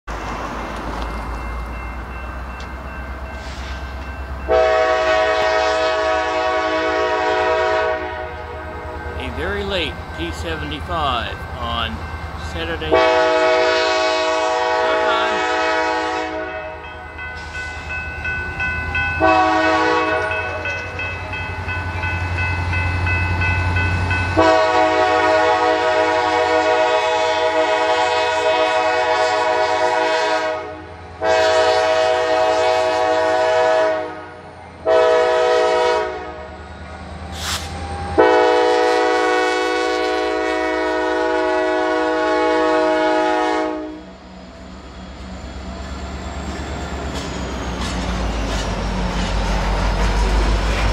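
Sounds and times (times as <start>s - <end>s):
locomotive air horn blasts: 4.5s - 9.5s, 12.6s - 16.8s, 19.2s - 20.4s, 24.4s - 36.5s, 37.4s - 44.1s
locomotive low rumble: 6.4s - 15.8s, 44.0s - 50.9s.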